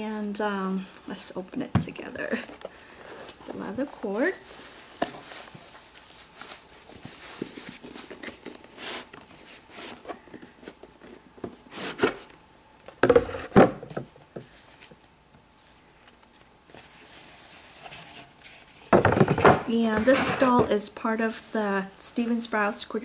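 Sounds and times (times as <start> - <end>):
box lid scraping off: 19.0 - 20.8.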